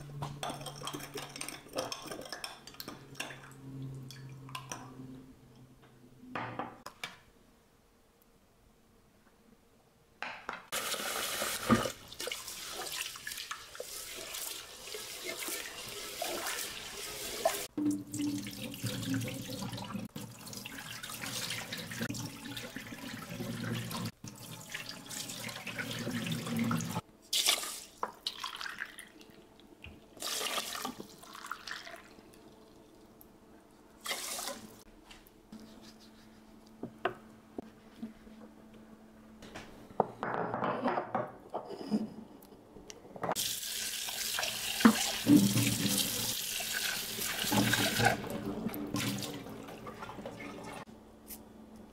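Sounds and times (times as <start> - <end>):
rice rinsed in a pot: 10.8 - 29.1, 30.2 - 32.2, 34.0 - 34.8
water poured into sink: 10.8 - 29.1, 30.2 - 32.5, 34.0 - 34.8, 43.4 - 50.8.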